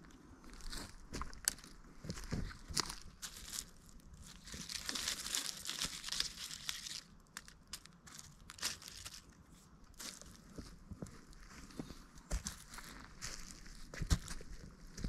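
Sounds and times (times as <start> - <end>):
dry leaves rustling: 0.5 - 9.4, 10.0 - 10.4
twigs snapping: 1.2 - 3.7, 4.3 - 9.4.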